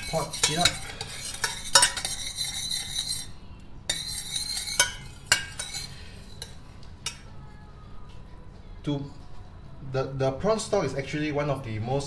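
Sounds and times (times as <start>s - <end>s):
metal spoon scraping saucepan: 0.0s - 7.3s
spoon clinking against pot: 0.0s - 7.3s.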